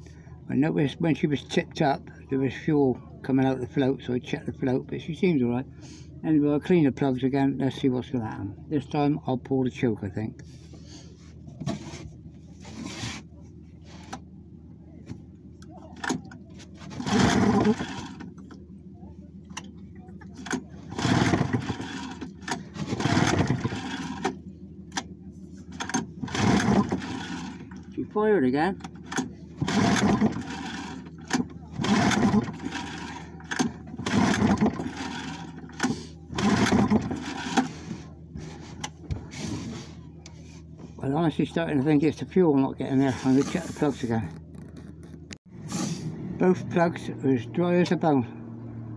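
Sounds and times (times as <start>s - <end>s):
outboard engine turning over: 15.0s - 48.9s
recoil starter pull: 15.6s - 18.6s, 19.4s - 28.1s, 28.7s - 39.8s
light clicks of controls: 19.4s - 20.7s.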